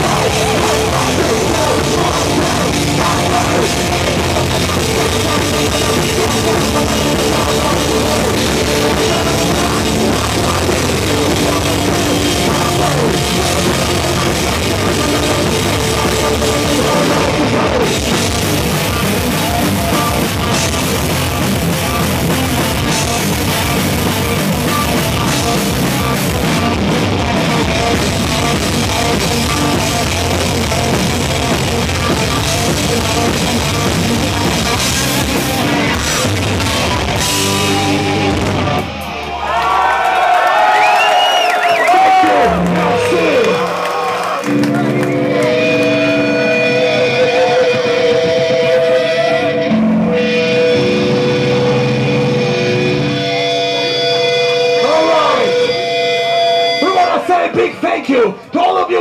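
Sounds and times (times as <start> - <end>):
drum kit: 0.0 - 39.9
bass guitar: 0.0 - 59.0
electric guitars: 0.0 - 59.0.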